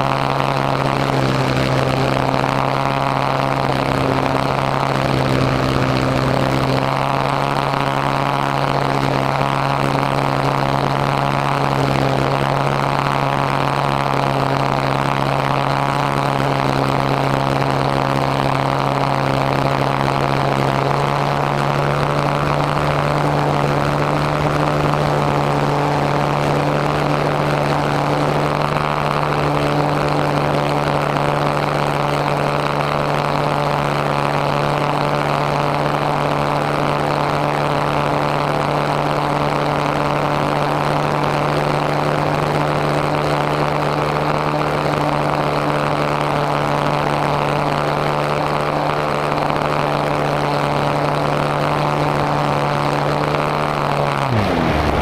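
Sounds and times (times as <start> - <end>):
model airplane motor drone: 0.0 - 55.0
air rushing past: 54.2 - 55.0.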